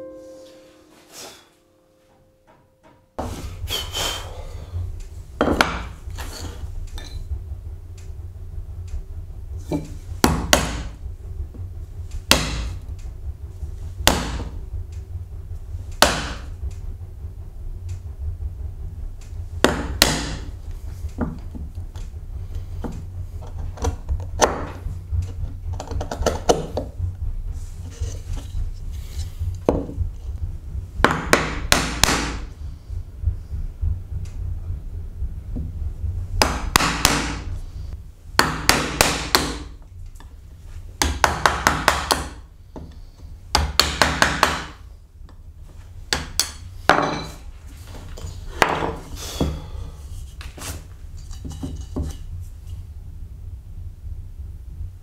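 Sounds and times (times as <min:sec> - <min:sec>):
hammer striking wood chisel: 0:05.4 - 0:05.9, 0:09.7 - 0:10.9, 0:12.3 - 0:12.7, 0:14.0 - 0:14.5, 0:16.0 - 0:16.4, 0:19.6 - 0:20.5, 0:31.1 - 0:32.4, 0:36.4 - 0:37.4, 0:38.4 - 0:39.7, 0:41.0 - 0:42.9, 0:43.5 - 0:44.8, 0:46.1 - 0:47.4.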